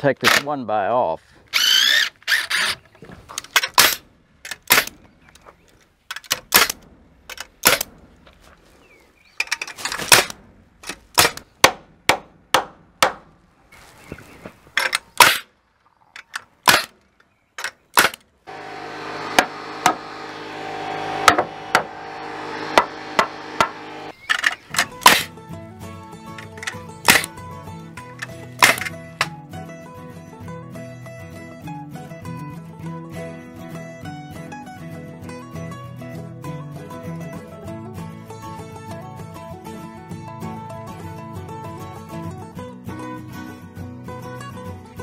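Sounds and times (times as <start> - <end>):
hammer striking timber: 11.2 - 13.3, 18.0 - 24.1.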